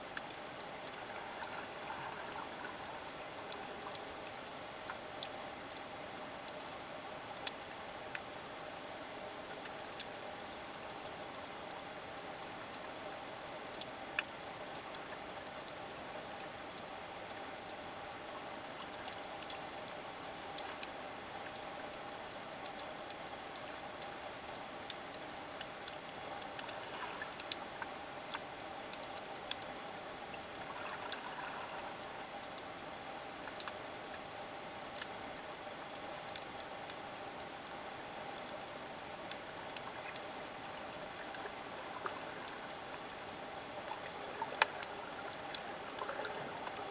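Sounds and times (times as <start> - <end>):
faint hum: 0.0 - 46.9
muffled underwater hiss: 0.0 - 46.9
sharp clicks and crackles: 13.7 - 46.9.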